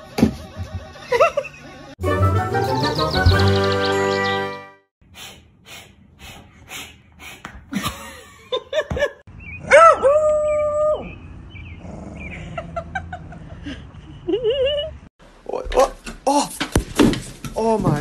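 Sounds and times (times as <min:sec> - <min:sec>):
dog yelping: 0:09.6 - 0:11.1
dog howling: 0:09.7 - 0:11.1.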